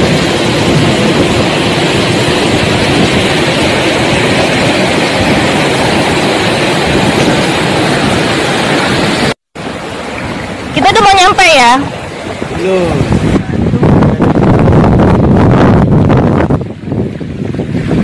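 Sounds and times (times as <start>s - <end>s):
waterfall rushing into river: 0.0s - 15.0s.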